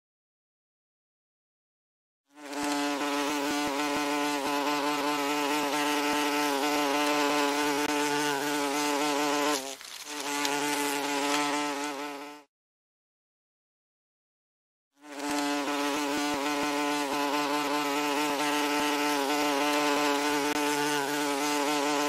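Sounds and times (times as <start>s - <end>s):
wasp buzzing: 2.3s - 12.5s, 15.0s - 22.0s.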